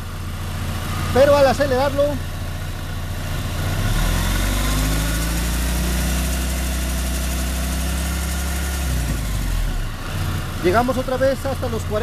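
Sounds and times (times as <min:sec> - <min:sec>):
car engine revving: 0:03.2 - 0:12.0.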